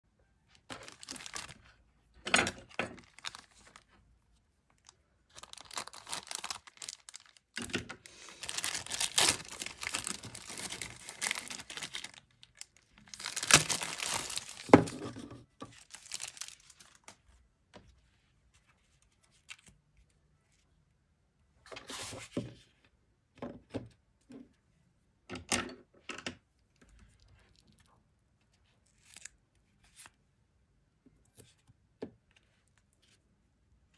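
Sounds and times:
plastic wrapping tearing and crinkling: 0.6s - 1.8s, 2.5s - 3.9s, 4.8s - 15.0s, 15.7s - 17.2s.

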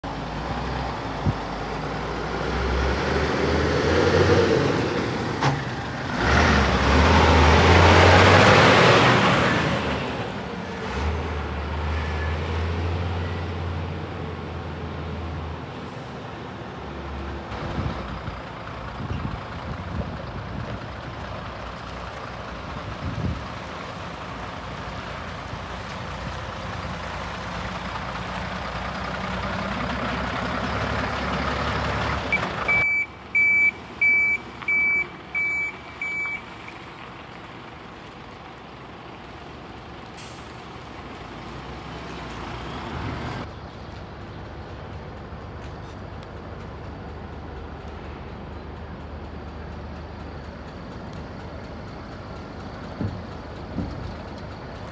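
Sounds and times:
diesel truck engine driving: 0.0s - 54.9s
reversing alarm beeping: 32.3s - 36.5s.

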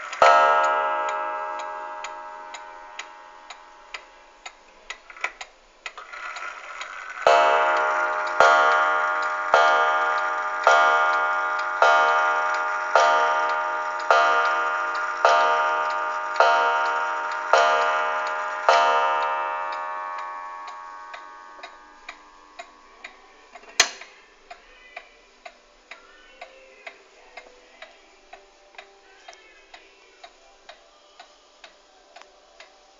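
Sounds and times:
clock ticking: 0.0s - 32.8s
clock gong striking: 0.1s - 4.3s, 7.2s - 23.4s.

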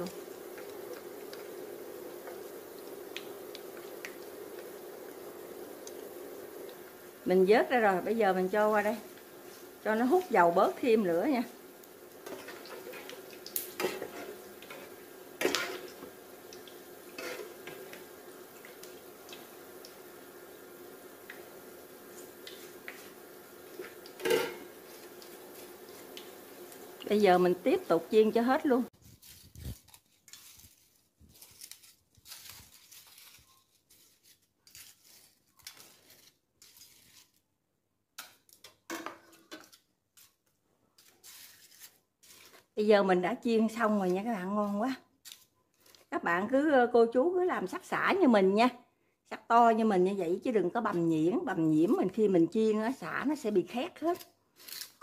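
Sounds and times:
frying oil crackle: 0.0s - 48.6s, 49.8s - 55.0s
crunchy fried strips rustling: 21.4s - 38.7s, 39.4s - 42.8s, 43.9s - 46.2s, 54.0s - 55.0s.

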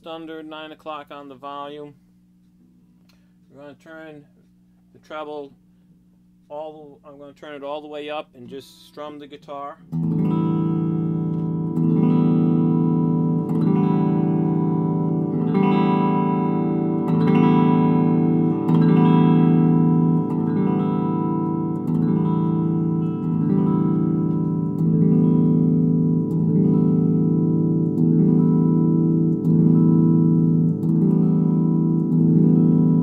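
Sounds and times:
clean electric guitar chords strummed: 7.1s - 33.0s.

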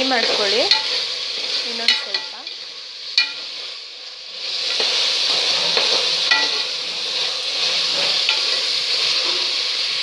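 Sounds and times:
meat sizzling in hot oil: 0.0s - 10.0s
steel spoon scraping a pot: 4.4s - 9.6s.

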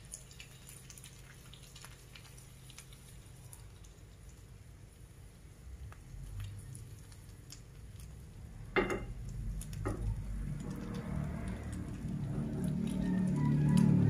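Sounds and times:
frying sizzle: 0.0s - 14.0s
fork knocking on pan: 8.8s - 9.2s.

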